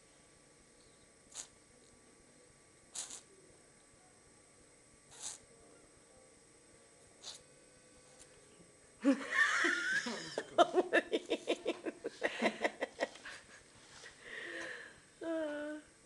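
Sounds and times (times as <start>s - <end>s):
person laughing: 9.0s - 13.6s.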